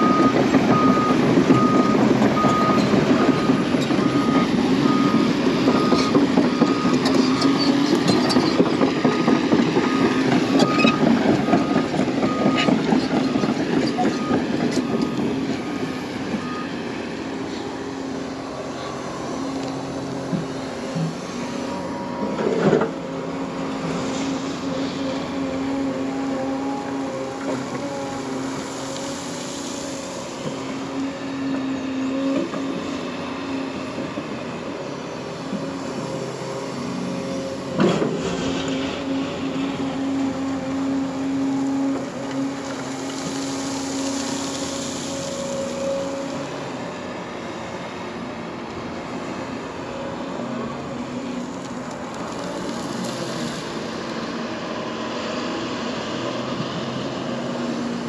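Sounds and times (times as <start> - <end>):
travel alarm beeping: 0.0 - 7.1
excavator diesel engine: 0.0 - 58.0.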